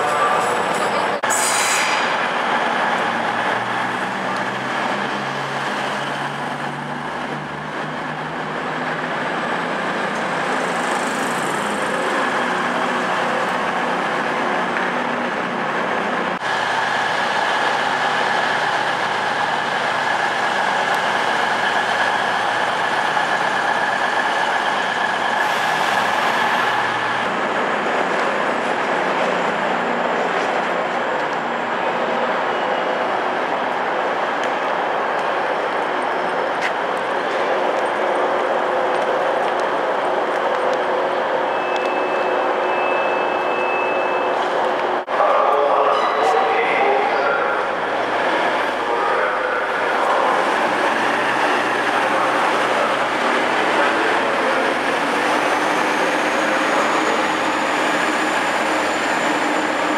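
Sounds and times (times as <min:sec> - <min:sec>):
diesel train engine drone: 0:00.0 - 0:59.9
diesel train passing close by: 0:00.0 - 0:59.9.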